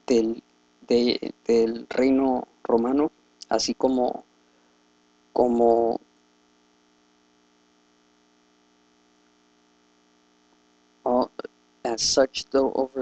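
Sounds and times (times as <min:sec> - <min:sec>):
person speaking a word: 0:00.0 - 0:04.2, 0:05.4 - 0:06.0, 0:11.1 - 0:13.0
faint mains hum: 0:00.0 - 0:13.0.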